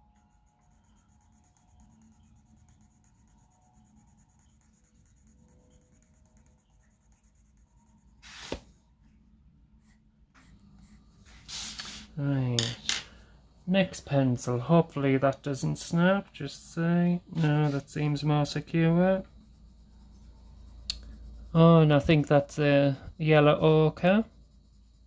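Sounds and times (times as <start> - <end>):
pencil scratching on paper: 0.1 - 8.6, 9.8 - 12.1, 17.4 - 25.0.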